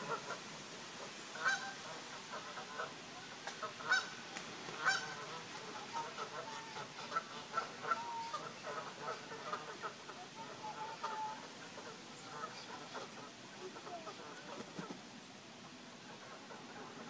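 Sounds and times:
geese honking: 1.4 - 2.9, 3.6 - 4.2, 4.8 - 14.6.

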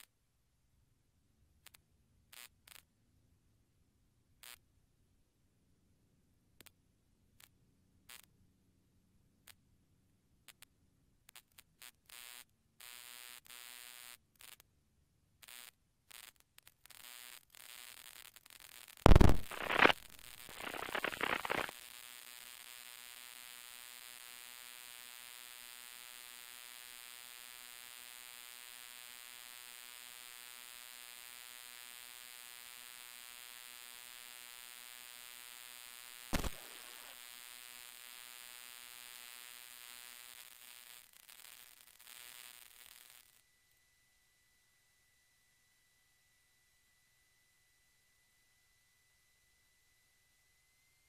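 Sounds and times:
electrical buzz: 19.1 - 21.7, 36.3 - 37.2
rush of noise: 19.1 - 21.7
click: 36.4 - 37.0.

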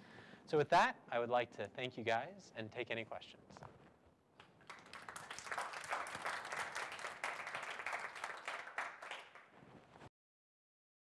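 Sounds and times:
audience applauding: 4.6 - 9.5.

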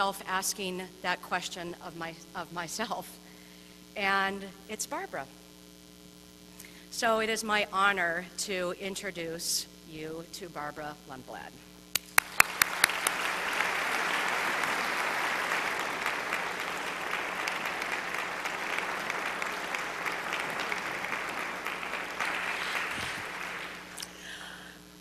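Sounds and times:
loud claps: 12.0 - 24.3
audience applauding: 12.0 - 24.4.

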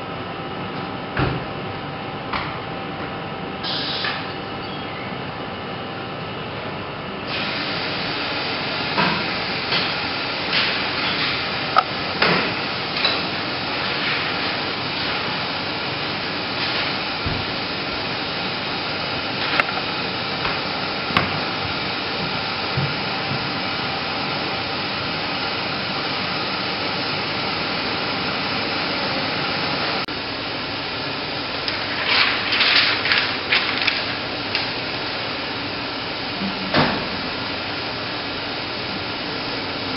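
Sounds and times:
projector machinery whirring: 0.0 - 39.9.

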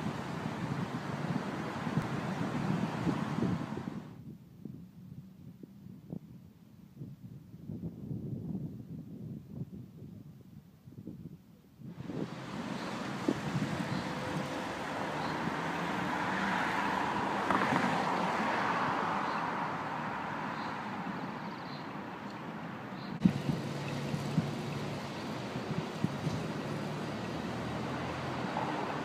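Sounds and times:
vehicle passing: 12.0 - 29.0.

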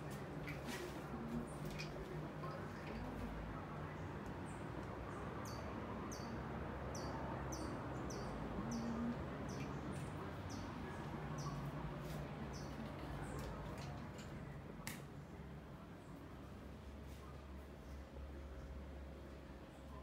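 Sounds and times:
steady low hum: 0.0 - 20.0
bird chirping: 5.4 - 11.7.

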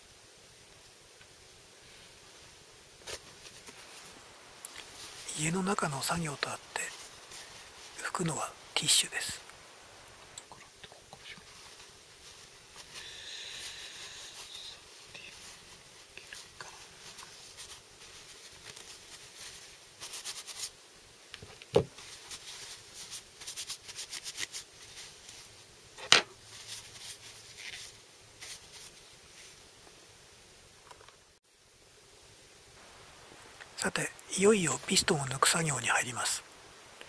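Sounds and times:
tissue paper crinkling: 3.0 - 8.2, 11.4 - 20.8, 22.0 - 25.5, 26.4 - 29.6.

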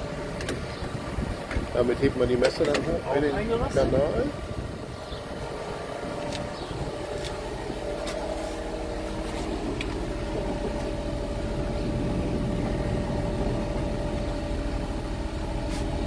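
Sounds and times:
constant whine: 0.0 - 16.0
tractor engine idling: 0.0 - 16.0.

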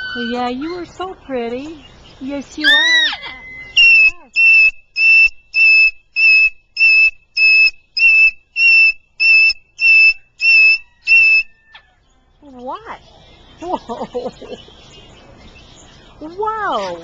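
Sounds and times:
cockatoo whistling calls: 2.6 - 11.9.

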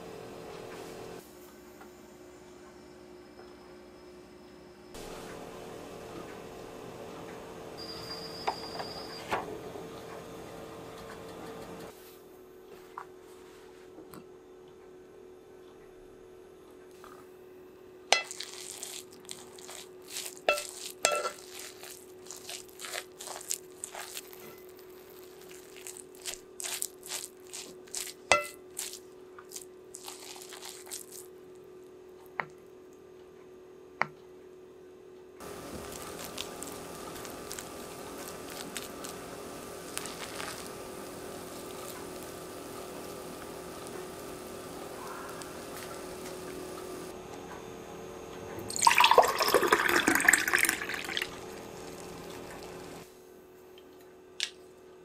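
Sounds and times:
wooden paddle scraping pot: 18.2 - 29.0
faint steady hiss: 35.4 - 47.2.

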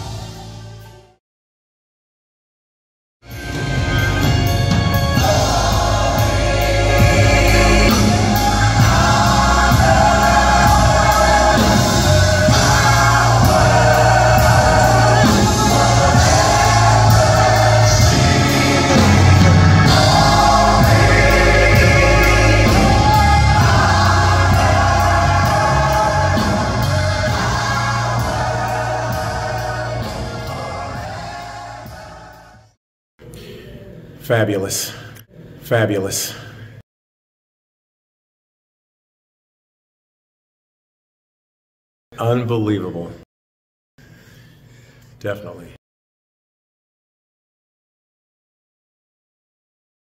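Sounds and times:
band with keyboards and drums: 0.0 - 1.2, 3.2 - 32.5
gospel choir singing: 3.9 - 32.8.

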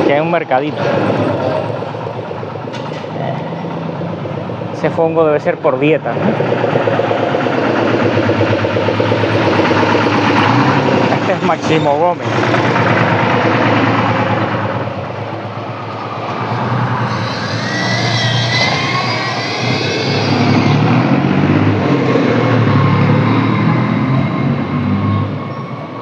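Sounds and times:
vehicle engine pulling away: 0.0 - 26.0
high wavering whine: 6.0 - 26.0.

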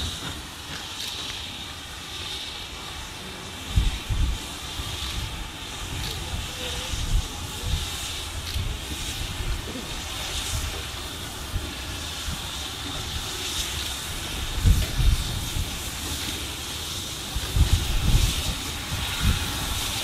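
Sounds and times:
steam locomotive hissing steam: 0.0 - 20.0.

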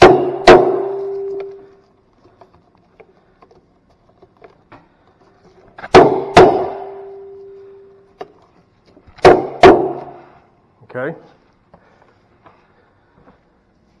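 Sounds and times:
sharp knocks: 0.0 - 1.5, 5.8 - 7.3, 9.2 - 10.3.

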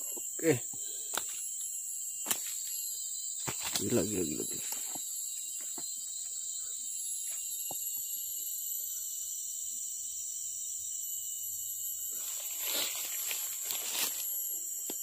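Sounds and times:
insects shrilling: 0.0 - 15.0
dry leaves rustling: 12.1 - 14.4.

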